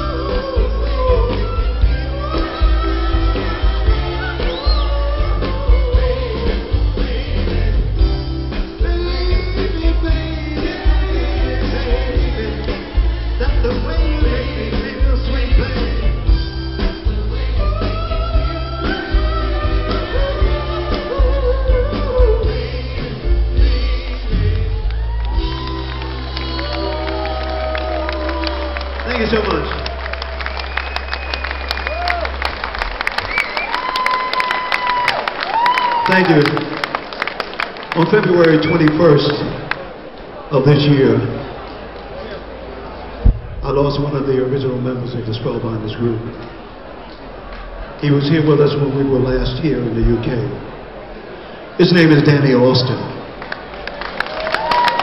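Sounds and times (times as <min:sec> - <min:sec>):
vocal group singing: 0:00.0 - 0:24.8
lead voice singing: 0:00.0 - 0:28.3
backing band playing: 0:00.0 - 0:40.0, 0:40.8 - 0:50.9.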